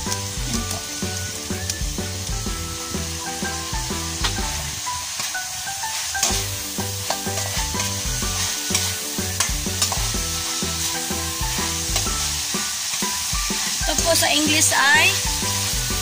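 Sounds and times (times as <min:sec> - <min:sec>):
food sizzling in a wok: 0:00.0 - 0:16.0
light background music: 0:00.0 - 0:16.0
metal spatula scraping a pan: 0:06.1 - 0:15.8.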